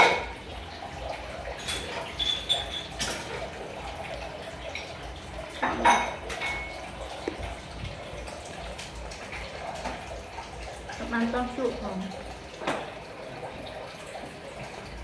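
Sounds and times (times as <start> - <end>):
spoons and bowls clinking: 1.6 - 3.5.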